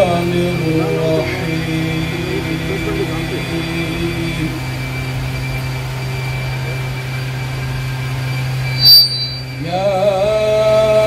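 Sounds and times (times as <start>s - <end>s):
man reciting melodically: 0.0s - 4.7s
steady low hum: 0.0s - 9.6s.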